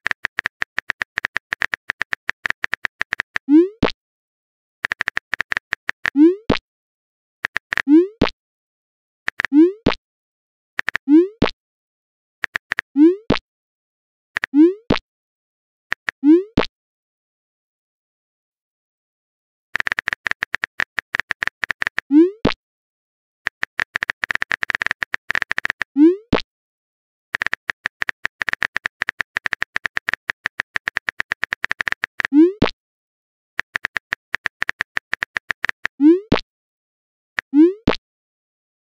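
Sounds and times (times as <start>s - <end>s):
phone keyboard typing clicks: 0.0s - 4.0s, 4.8s - 6.2s, 7.4s - 7.9s, 9.3s - 10.0s, 10.8s - 11.6s, 12.4s - 13.4s, 19.8s - 22.1s, 23.5s - 26.4s, 27.4s - 32.8s, 33.6s - 36.4s.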